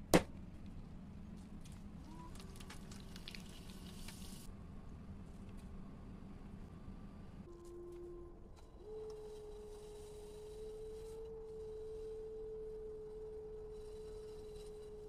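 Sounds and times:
pottery wheel motor whining: 7.9 - 15.0.

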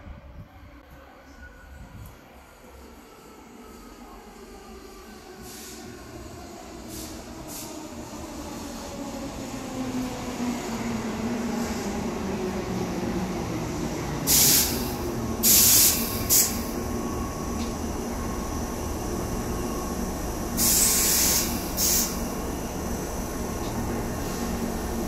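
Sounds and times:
electric train arriving: 1.1 - 25.0
air hisses: 14.3 - 16.7, 20.6 - 22.2.

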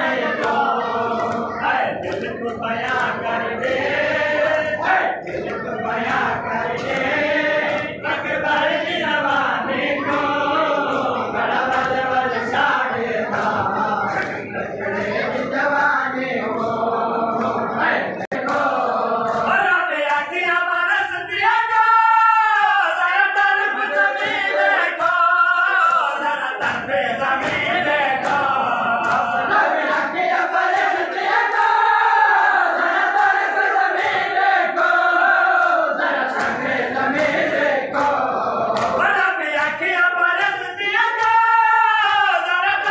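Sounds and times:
men chanting together: 0.0 - 42.9
hands slapping on chests: 0.1 - 8.6, 18.3 - 20.3, 26.6 - 31.4, 33.1 - 39.9.

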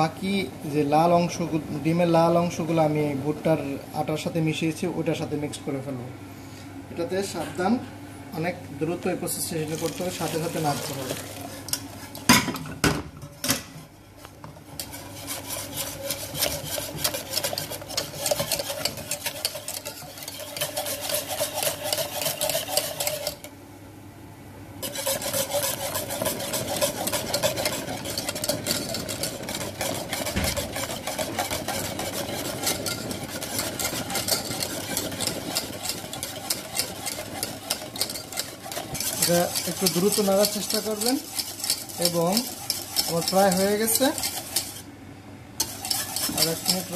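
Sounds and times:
whisk scraping metal pot: 9.2 - 12.3, 14.4 - 23.5, 24.8 - 44.9, 45.6 - 46.9.

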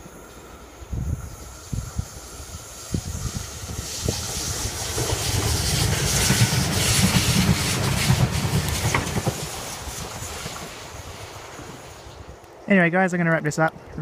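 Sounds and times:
diesel railcar engine rumble: 0.0 - 12.7
train wheels clattering on rails: 1.6 - 12.5.

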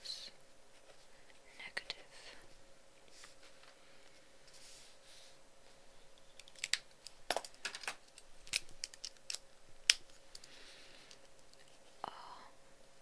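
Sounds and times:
small hard objects clicking: 6.4 - 11.7.

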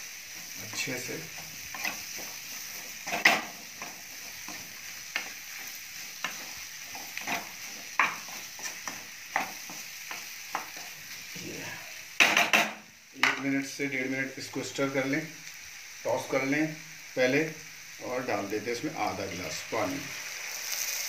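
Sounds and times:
frying sizzle: 0.0 - 21.0
spatula scraping and knocking pan: 0.3 - 11.1, 12.2 - 13.5.

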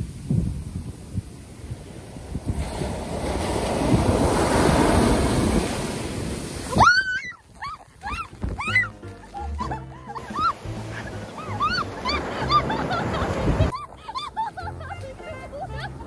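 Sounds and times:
surf washing up beach: 0.0 - 16.0
high yelping cries: 6.7 - 12.8.

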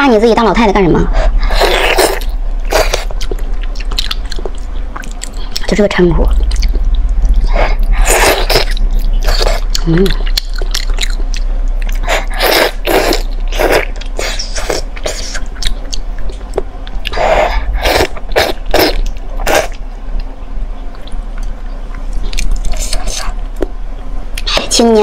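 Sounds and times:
wet chewing and sucking sounds: 6.4 - 20.3.

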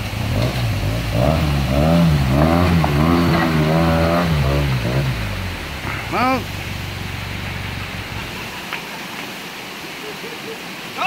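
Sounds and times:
vehicle engine revving: 0.0 - 8.6
creek water rushing: 0.0 - 11.0.

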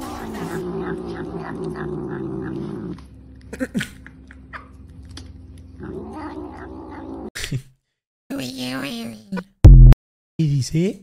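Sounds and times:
cat growling: 0.0 - 3.0, 5.8 - 7.3.

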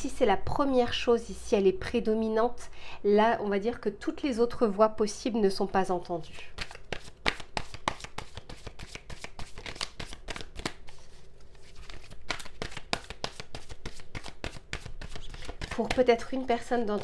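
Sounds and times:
cards being shuffled by hand: 6.4 - 17.0.

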